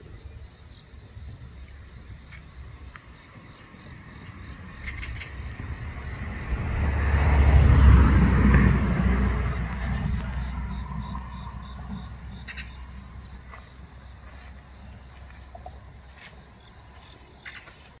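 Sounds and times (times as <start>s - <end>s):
insects trilling and chirping: 0.0s - 18.0s
low rumble: 4.4s - 14.2s.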